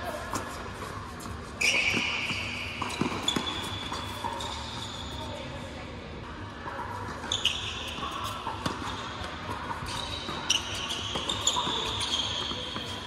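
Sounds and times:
tennis balls struck by rackets: 1.6s - 4.6s.

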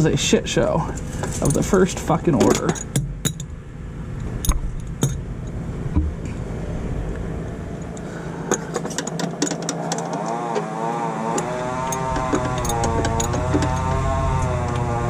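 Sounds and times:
low hum: 0.0s - 15.0s
wrench clinking against metal: 2.4s - 3.5s, 11.9s - 13.9s.

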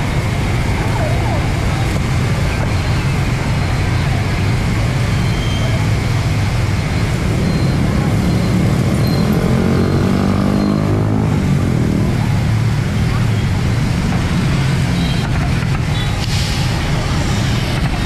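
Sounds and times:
people talking: 0.0s - 18.0s
street traffic drone: 0.0s - 18.0s
engine passing nearby: 7.1s - 12.5s.

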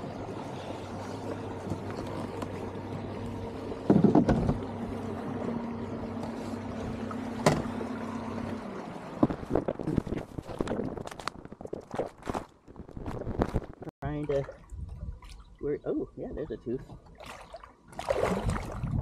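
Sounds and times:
boat motor humming: 0.0s - 11.6s
water splashes: 0.0s - 15.8s, 16.9s - 19.0s.

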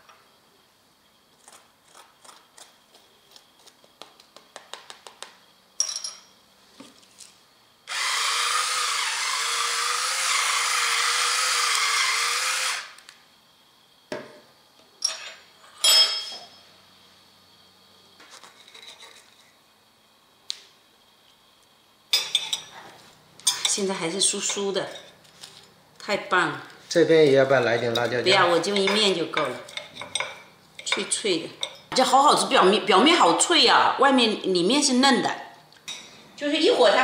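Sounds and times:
electric pepper mill grinding: 7.9s - 13.1s.

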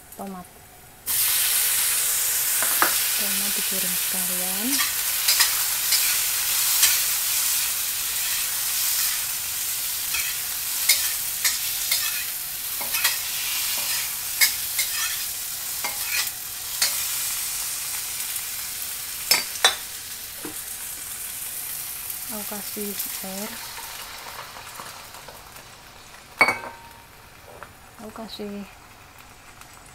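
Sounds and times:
vegetables sizzling in oil: 0.0s - 29.9s
metal spatula scraping wok: 4.7s - 7.5s, 10.1s - 17.1s.

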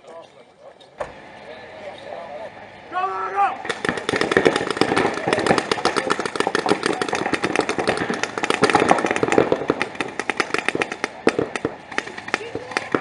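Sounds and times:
paintball markers firing rapidly: 3.6s - 13.0s.

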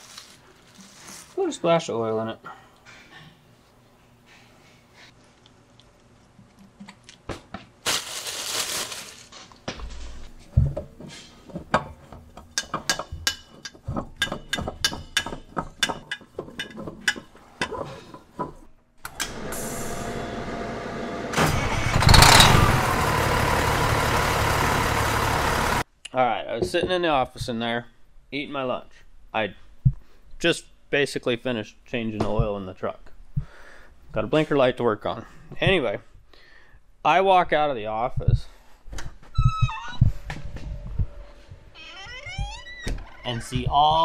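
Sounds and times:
tools clicking and clanking: 11.5s - 19.3s
diesel engine running: 19.2s - 25.8s.

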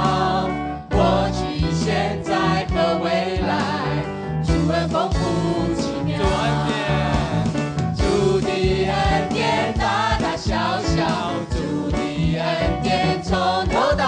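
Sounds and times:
band with steady drum beat: 0.0s - 14.0s
singers singing praise song: 0.0s - 14.0s.

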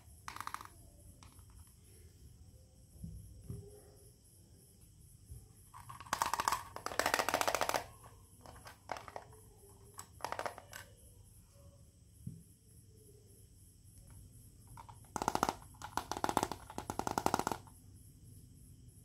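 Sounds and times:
plastic toy pieces clattering: 0.0s - 1.7s, 5.7s - 11.0s, 14.7s - 17.7s
rapid plastic clicks: 0.0s - 1.7s, 5.7s - 10.9s, 14.7s - 17.8s.

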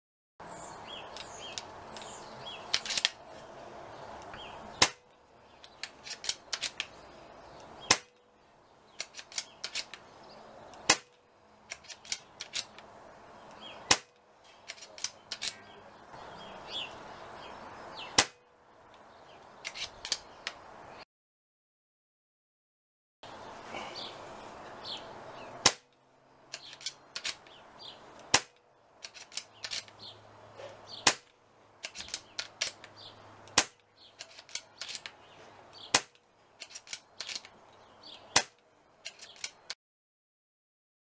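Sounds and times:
air rifle shots: 4.8s - 5.1s, 7.8s - 8.2s, 10.8s - 12.8s, 13.8s - 14.2s, 18.1s - 18.4s, 25.6s - 25.9s, 28.3s - 29.4s, 31.0s - 32.8s, 33.5s - 33.8s, 35.8s - 36.2s, 38.3s - 38.6s.

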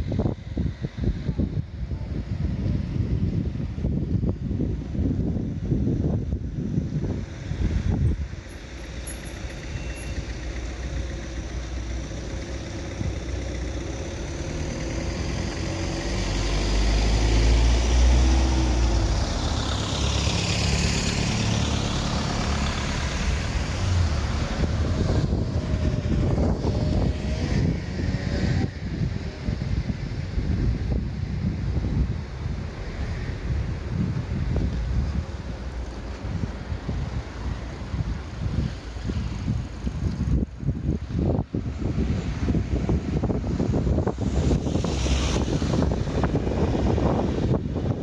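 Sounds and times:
steady traffic noise: 0.0s - 48.0s
wind buffeting microphone: 0.0s - 48.0s
vehicle driving past: 8.9s - 28.9s.

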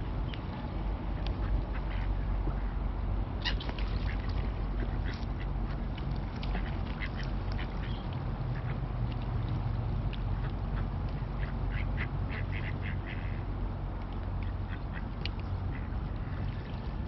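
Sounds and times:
ducks quacking: 1.4s - 2.8s, 3.4s - 8.8s, 10.3s - 13.4s
gulls calling: 3.4s - 9.0s.

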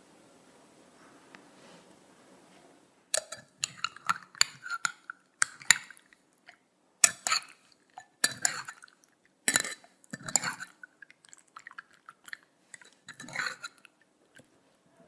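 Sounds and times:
spoon clinking against glass bowl: 3.2s - 6.0s, 7.0s - 8.8s, 9.5s - 10.7s, 12.8s - 13.8s.

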